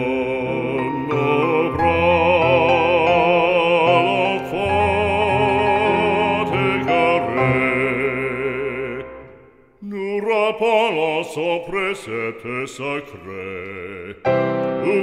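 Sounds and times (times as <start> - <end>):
piano chords: 0.0 - 9.5, 14.2 - 15.0
operatic singing with vibrato: 0.0 - 15.0.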